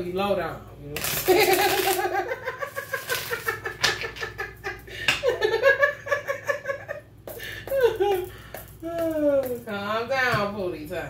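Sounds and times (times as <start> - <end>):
woman laughing: 1.2 - 9.5.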